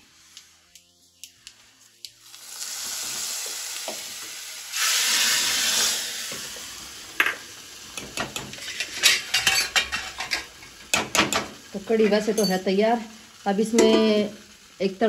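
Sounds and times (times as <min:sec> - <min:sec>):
hot oil sizzling in a pot: 0:00.0 - 0:15.0.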